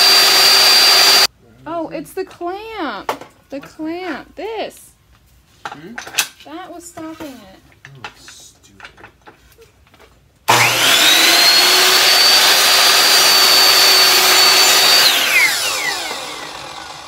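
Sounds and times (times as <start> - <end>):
miter saw motor whining: 0.0 - 1.3, 10.5 - 17.0
saw blade cutting wood: 0.0 - 1.3, 10.5 - 17.0.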